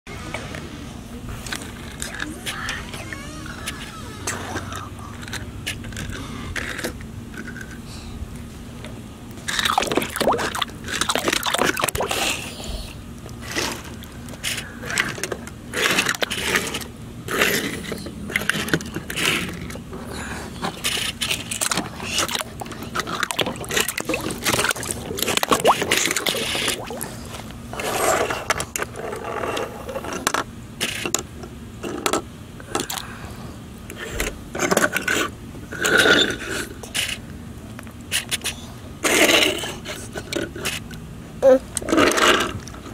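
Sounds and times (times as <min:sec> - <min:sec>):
toy cars rolling and scraping: 0:01.4 - 0:07.8, 0:13.4 - 0:26.7, 0:27.7 - 0:32.2, 0:33.9 - 0:37.3, 0:38.1 - 0:41.0, 0:41.8 - 0:42.9
toy cars splashing into water: 0:09.4 - 0:12.3, 0:21.4 - 0:27.2.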